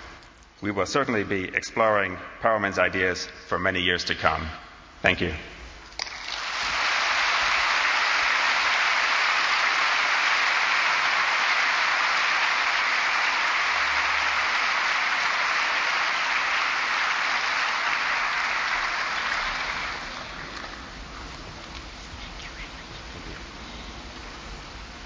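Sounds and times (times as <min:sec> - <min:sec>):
audience applauding: 0:06.0 - 0:21.9.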